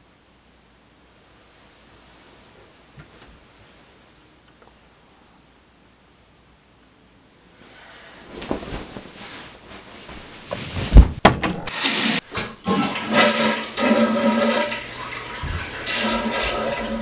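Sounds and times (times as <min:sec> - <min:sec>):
heavy thump: 0:10.1 - 0:11.7
water rushing: 0:11.8 - 0:17.0.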